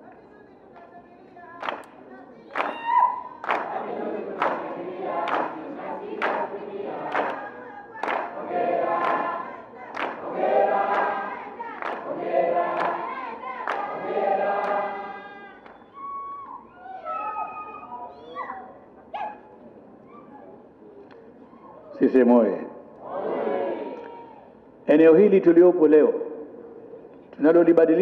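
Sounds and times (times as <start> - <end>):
crowd singing in chorus: 3.3 - 16.0, 23.0 - 24.1
high wavering cries: 15.8 - 18.7.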